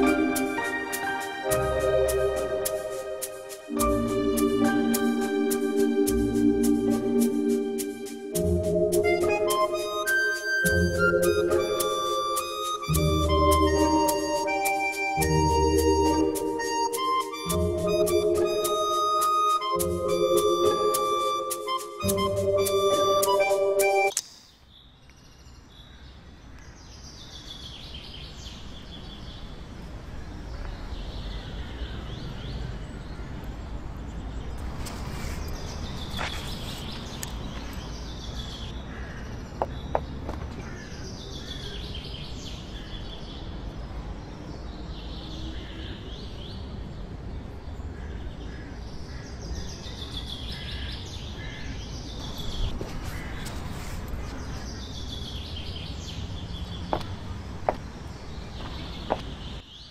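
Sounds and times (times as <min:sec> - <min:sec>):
birds singing: 0:30.2 - 0:59.9.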